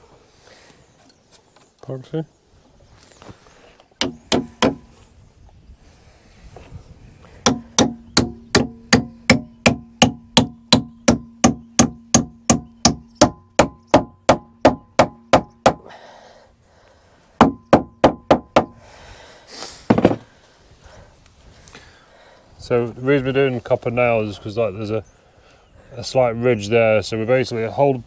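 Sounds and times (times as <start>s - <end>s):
hammer driving nails into wood: 4.0s - 4.9s, 7.4s - 15.9s, 17.4s - 18.8s.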